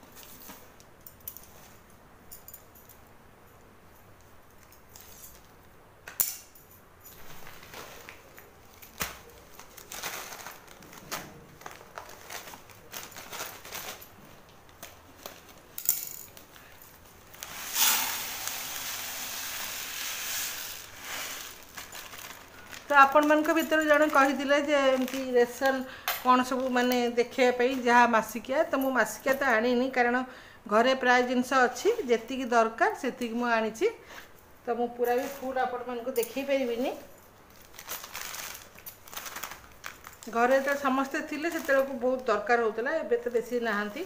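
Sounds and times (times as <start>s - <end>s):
plastic packet rustling: 7.2s - 27.9s, 35.0s - 42.5s
sugar pouring into jar: 17.4s - 21.6s.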